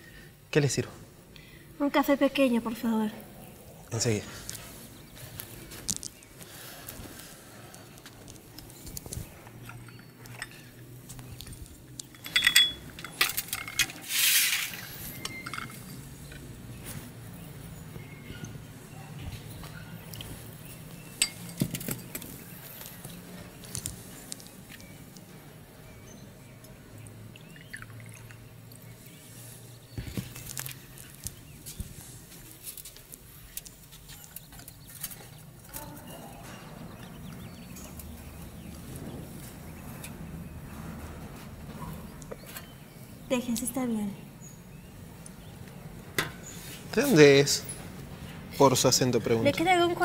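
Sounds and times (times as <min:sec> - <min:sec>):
crockery and cutlery clinking: 0:12.0 - 0:16.5, 0:21.1 - 0:22.3
crockery clinking on metal tray: 0:12.1 - 0:13.9.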